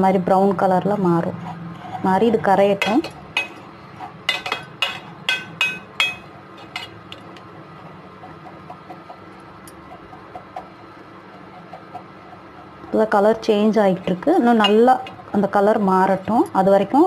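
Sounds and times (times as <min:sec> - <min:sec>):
metal spoon clinking in saucepan: 0:04.3 - 0:07.2, 0:14.6 - 0:15.2.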